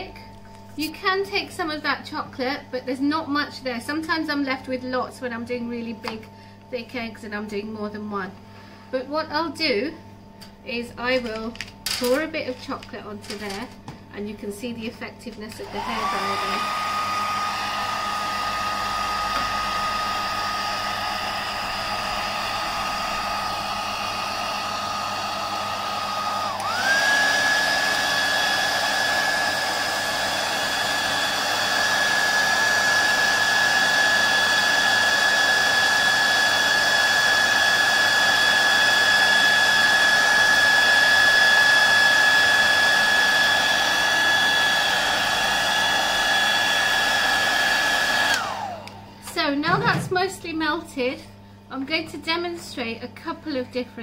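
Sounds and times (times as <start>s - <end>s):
hairdryer whining: 0.0s - 2.3s, 10.8s - 51.2s.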